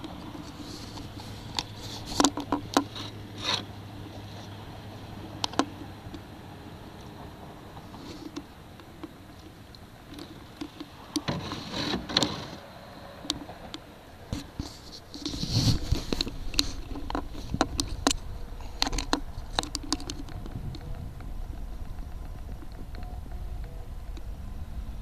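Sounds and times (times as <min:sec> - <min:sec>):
rush of noise: 0:00.0 - 0:25.0
canoe knocks and clicks: 0:14.3 - 0:24.3.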